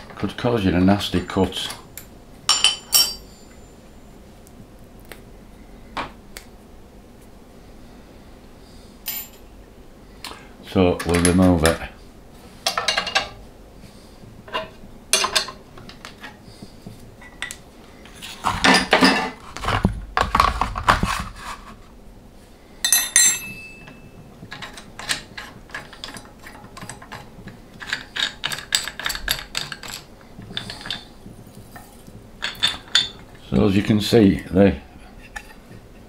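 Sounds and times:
metal tools clinking and clattering: 2.5 - 3.6, 12.7 - 13.4, 14.5 - 15.6, 18.3 - 19.4, 22.8 - 33.4
ringing metallic clink: 2.5 - 3.8, 22.8 - 24.2
knocking and scraping: 18.1 - 21.9.

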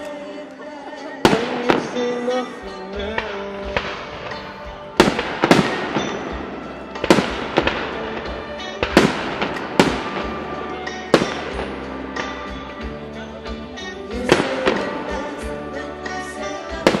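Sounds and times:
music playing: 0.0 - 17.0
firework bangs with crackling tails: 1.2 - 13.0, 13.8 - 15.5, 16.6 - 17.0.

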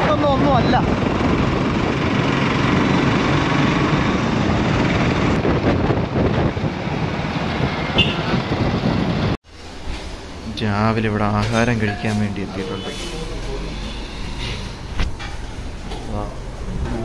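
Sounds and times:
vehicle engine and road rumble: 0.0 - 17.0
rushing air: 13.0 - 17.0.

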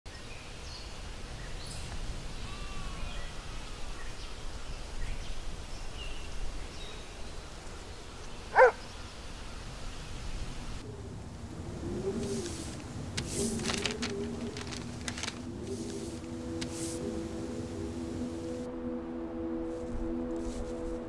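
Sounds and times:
dog barking: 8.5 - 8.8.

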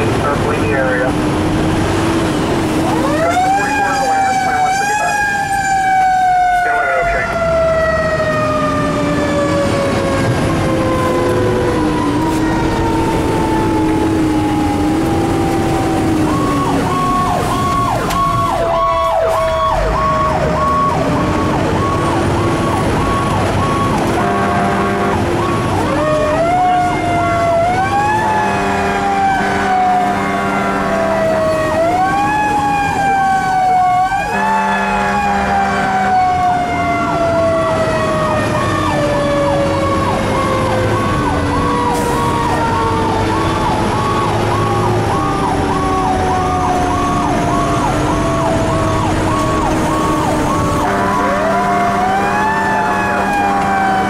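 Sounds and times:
fire engine siren rising and falling: 0.0 - 54.0
truck horn blasts: 24.0 - 26.2, 28.1 - 31.2, 34.3 - 36.3, 50.8 - 53.8.

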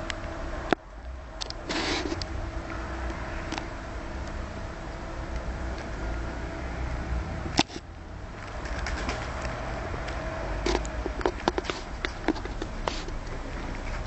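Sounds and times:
pigeons moving about: 8.4 - 14.0.

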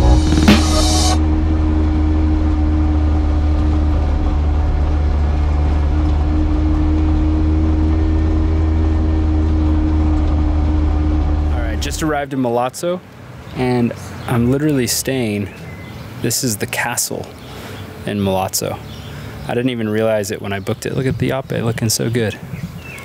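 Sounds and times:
small engine droning: 0.0 - 12.2.

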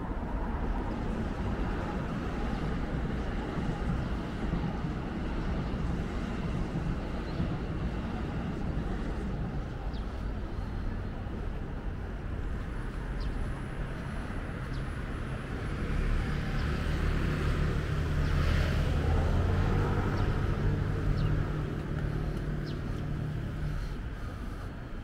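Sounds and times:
street noise: 0.0 - 25.0
vehicle passing by: 15.5 - 24.6.

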